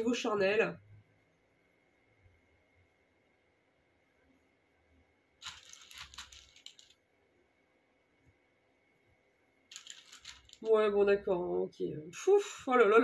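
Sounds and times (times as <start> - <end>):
cards being shuffled: 5.4 - 7.0, 9.7 - 10.7.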